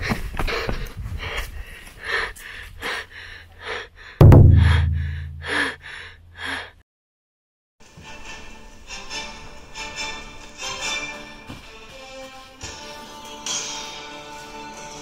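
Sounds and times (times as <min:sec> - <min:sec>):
deep booming hit: 0:04.2 - 0:05.8.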